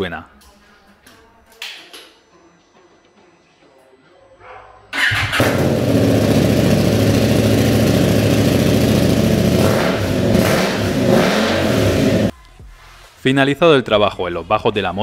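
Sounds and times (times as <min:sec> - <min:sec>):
motorcycle engine starting and idling: 0:05.0 - 0:12.3.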